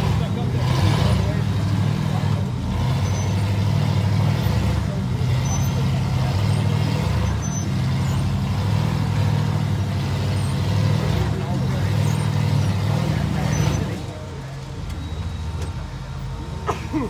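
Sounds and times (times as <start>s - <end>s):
buggy engine running under load: 0.0s - 17.0s.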